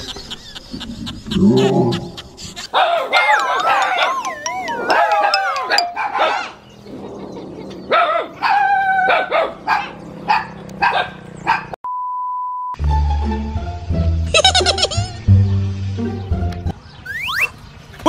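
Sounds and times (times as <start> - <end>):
dog yelping: 2.6 - 6.6, 7.9 - 11.8
dog barking: 2.7 - 4.1, 4.9 - 6.6, 7.9 - 11.8
test-tone beep: 3.3 - 6.0
music: 12.8 - 16.8.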